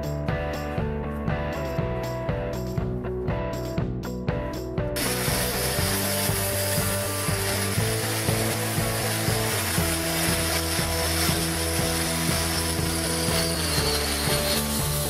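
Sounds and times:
angle grinder grinding metal: 5.0s - 15.0s.

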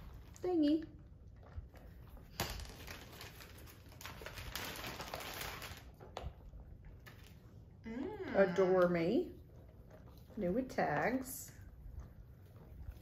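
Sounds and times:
plastic bag crinkling: 2.3s - 6.2s.

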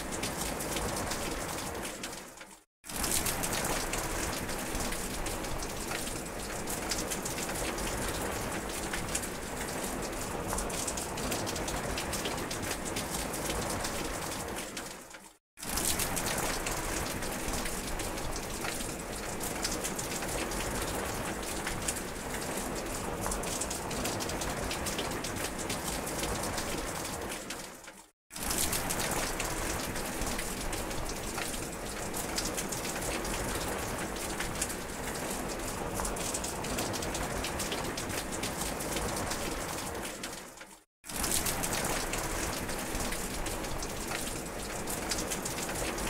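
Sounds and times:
steady rain falling: 0.0s - 46.0s
raindrops ticking: 3.2s - 14.0s, 27.4s - 46.0s.

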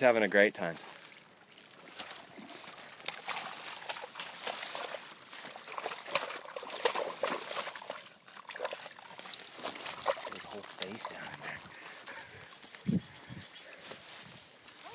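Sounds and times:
dog splashing in muddy water: 2.0s - 12.6s.

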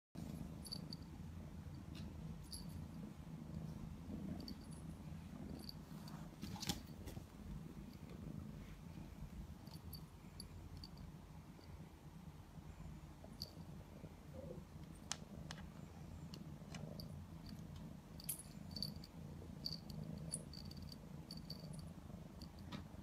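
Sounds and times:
cat purring: 0.2s - 23.0s
small ticks and clicks: 14.8s - 19.1s.

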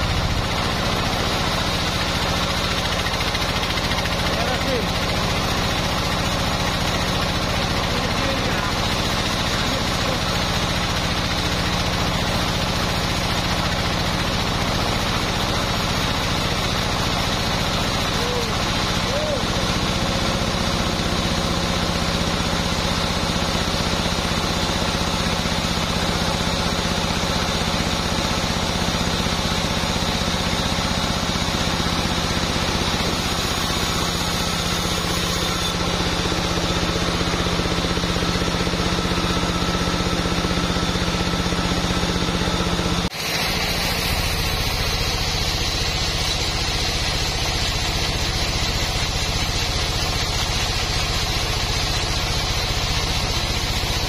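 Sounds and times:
band sawmill sawing log: 0.0s - 54.0s.

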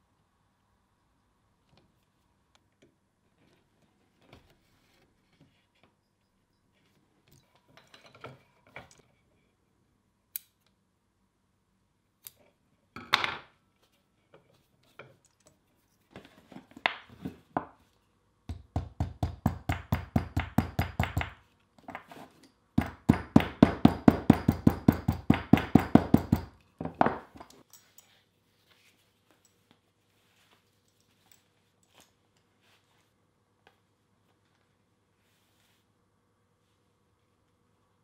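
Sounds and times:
hammer tapping leather belt: 22.8s - 26.6s.

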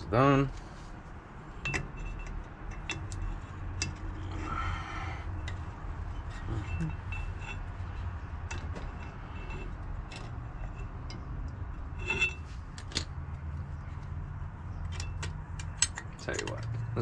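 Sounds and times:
steady low hum: 0.0s - 17.0s
light metallic clicks and clinks: 6.3s - 17.0s.

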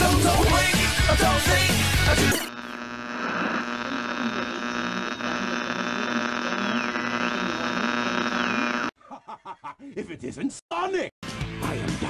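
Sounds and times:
electronic buzzing hum: 2.3s - 8.9s
thin high whine: 2.3s - 8.9s.

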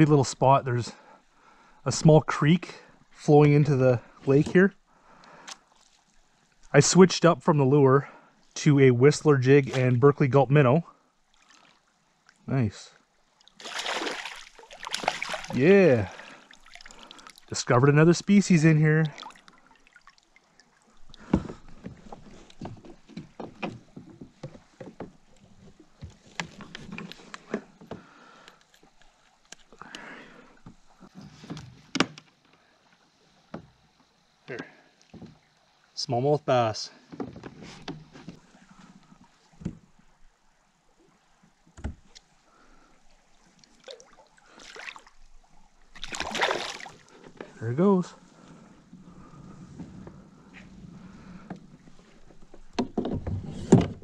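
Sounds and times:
soft water swishing: 4.0s - 6.8s, 10.8s - 31.5s, 36.6s - 52.8s.

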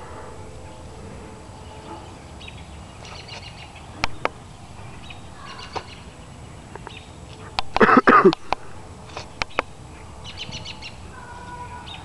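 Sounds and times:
soft high bird calls: 0.0s - 7.6s, 9.1s - 12.0s
sharp clicks: 7.6s - 9.7s.

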